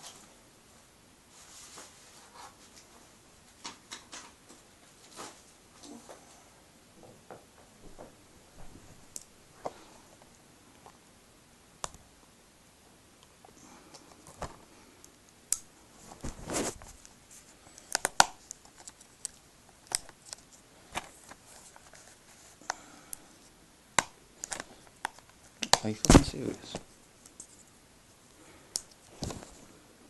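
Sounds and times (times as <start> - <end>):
plastic packaging clicks and rustles: 16.0 - 22.8.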